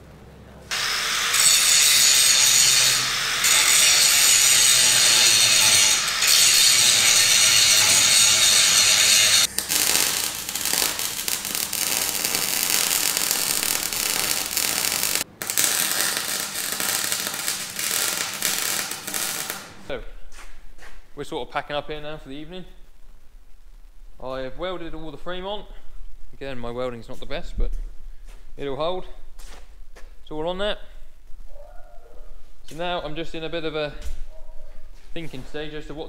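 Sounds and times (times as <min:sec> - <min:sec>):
angle grinder grinding steel: 0:00.7 - 0:19.8
arc welding crackling sizzle: 0:00.7 - 0:20.1.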